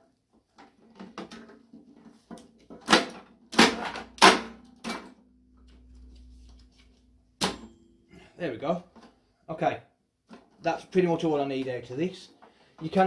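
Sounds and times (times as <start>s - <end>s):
plastic and metal parts clattering: 0.3s - 5.2s.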